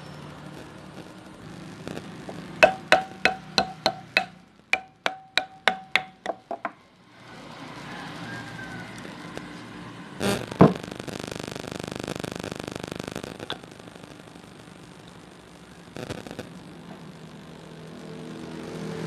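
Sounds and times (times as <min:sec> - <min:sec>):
hammer tapping on metal: 0:02.6 - 0:06.8.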